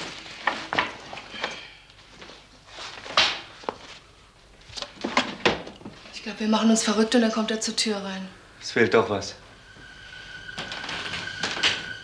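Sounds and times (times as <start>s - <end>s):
person moving about room: 0.0s - 6.2s, 9.4s - 12.0s.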